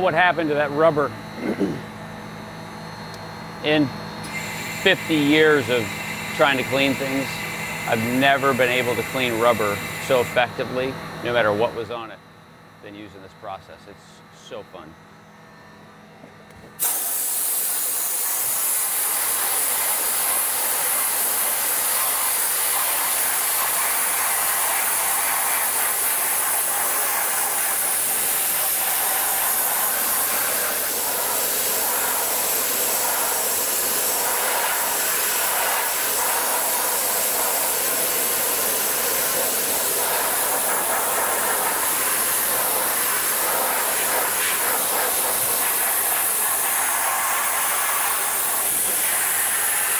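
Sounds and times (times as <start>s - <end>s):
dry ice blasting gun hissing: 4.2s - 10.5s, 16.8s - 49.9s.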